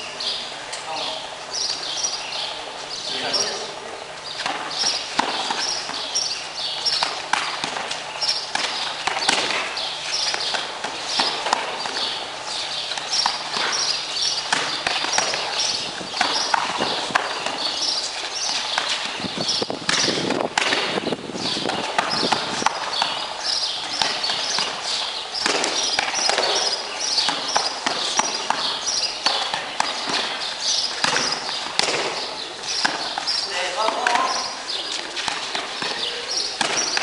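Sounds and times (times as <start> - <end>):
rapid high chirping: 7.9 - 35.0
punches thudding on gloves and pads: 8.5 - 12.2, 13.1 - 19.2, 19.8 - 23.3, 23.9 - 24.8, 25.4 - 30.4, 31.0 - 33.2, 35.2 - 37.0.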